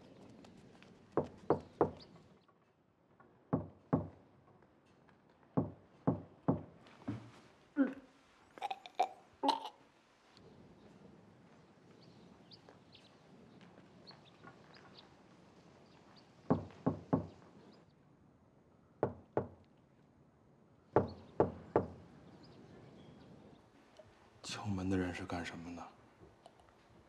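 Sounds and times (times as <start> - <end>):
knocking on wooden door: 1.2 - 2.0, 3.5 - 4.2, 5.6 - 7.3, 16.5 - 17.4, 19.0 - 19.6, 21.0 - 22.0.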